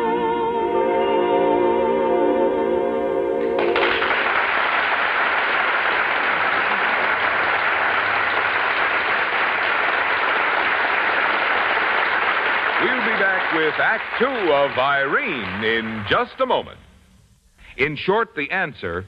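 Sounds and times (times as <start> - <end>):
audience applauding: 3.4 - 16.6.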